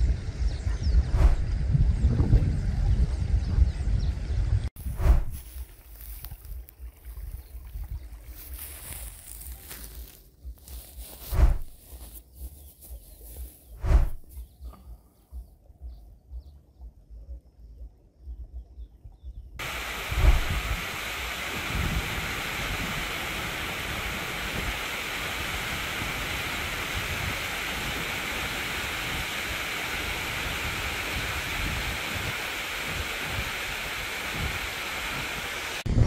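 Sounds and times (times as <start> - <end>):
wind gusts on microphone: 0.0 - 5.6, 6.3 - 9.1, 11.2 - 11.8, 13.8 - 14.4, 19.6 - 36.0
stream rushing over rocks: 19.6 - 35.9.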